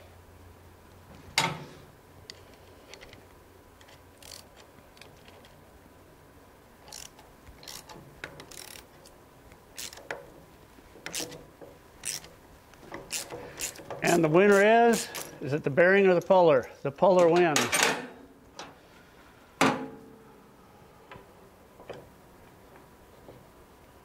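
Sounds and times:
ratchet wrench clicking: 3.8 - 5.1, 6.8 - 9.0, 9.7 - 10.2, 11.0 - 11.4, 12.0 - 15.3.

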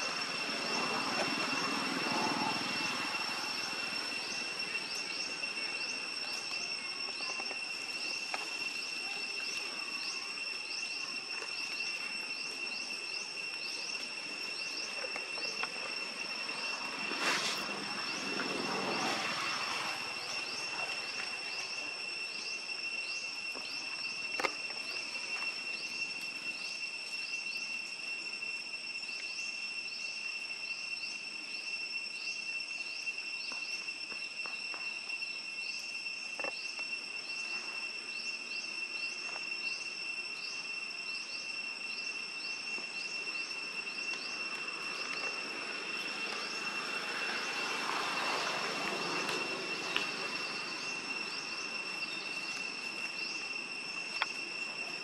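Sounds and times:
loud noisy swell: 0.0 - 7.1, 12.4 - 22.5, 43.0 - 55.0
insect chirps: 0.0 - 55.0
insects droning: 0.0 - 55.0.

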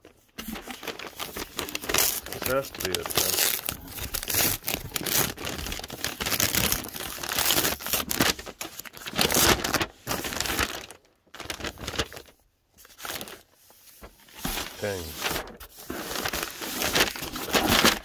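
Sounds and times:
plastic bag crinkling: 0.4 - 12.4.

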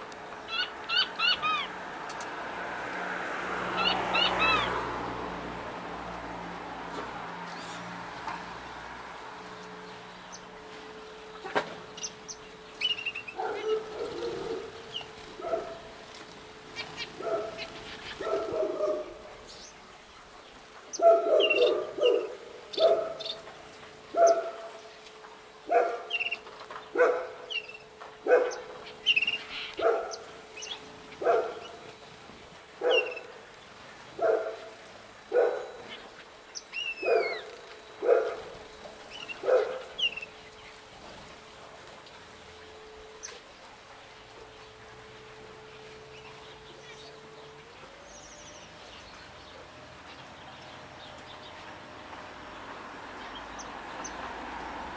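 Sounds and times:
small birds chirping: 9.4 - 32.2, 32.8 - 40.9
dog barking: 13.4 - 14.7, 15.4 - 15.9, 17.2 - 19.2, 21.0 - 23.2, 24.1 - 24.6, 25.7 - 26.1, 27.0 - 27.4, 28.2 - 28.7, 29.8 - 30.2, 31.2 - 31.7, 32.8 - 33.2, 34.2 - 34.7, 35.3 - 35.8, 37.0 - 37.4, 38.0 - 38.5, 39.4 - 39.9.

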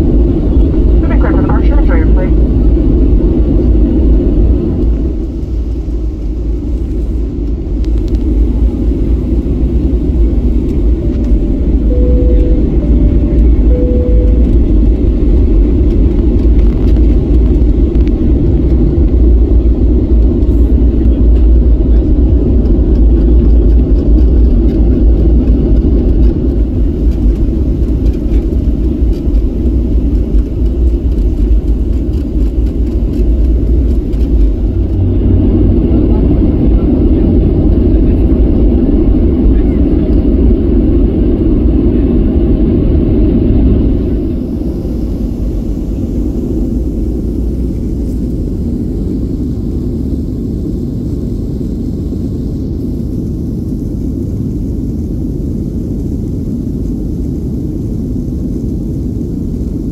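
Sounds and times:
airplane taxiing rumble in cabin: 0.0 - 59.9
falling two-note chime: 11.9 - 14.5.

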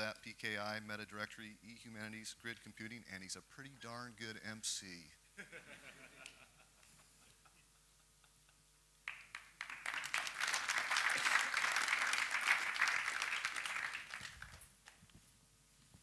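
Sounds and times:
audience applauding: 9.0 - 15.0.

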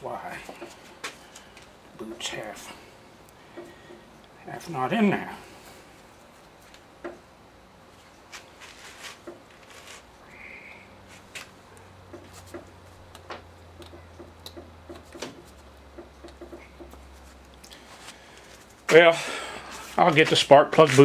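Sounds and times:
small clicks and taps of hands: 12.1 - 15.2.

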